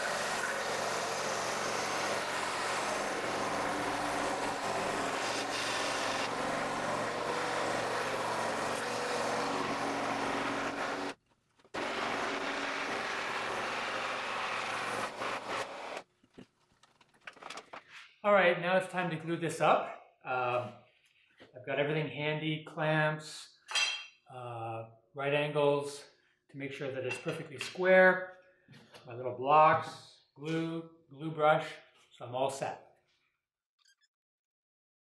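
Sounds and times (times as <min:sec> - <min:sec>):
scroll saw cutting wood: 0:00.0 - 0:11.2, 0:11.8 - 0:16.1.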